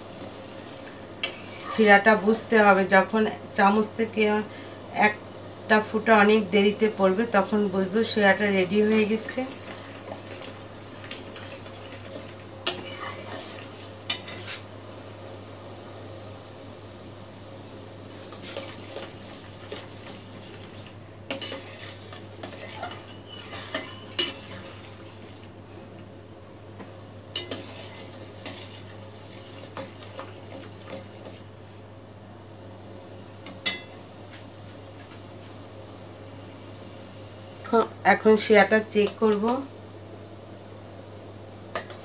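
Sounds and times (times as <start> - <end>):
metal spatula scraping pot: 0.0 - 1.9, 8.6 - 14.6, 18.3 - 25.4, 27.4 - 31.4.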